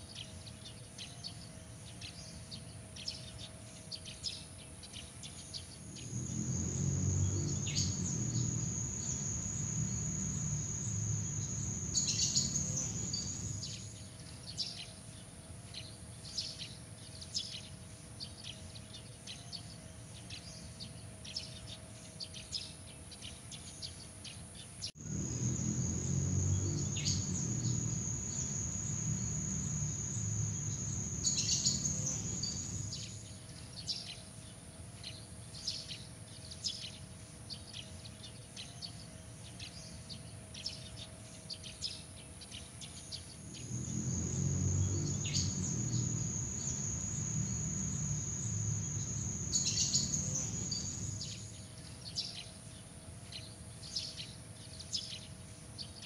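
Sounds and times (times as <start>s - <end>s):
small birds chirping: 0.0s - 24.0s, 24.8s - 34.3s, 35.0s - 56.0s
high insect trill: 5.8s - 14.0s, 25.0s - 33.3s, 43.2s - 51.7s
high insect whine: 5.8s - 14.0s, 25.0s - 33.3s, 43.2s - 51.8s
low rumble: 25.0s - 33.1s.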